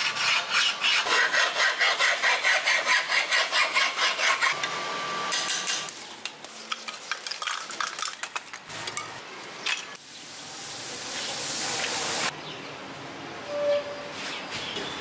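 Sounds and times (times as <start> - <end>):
hiss: 10.1 - 12.3.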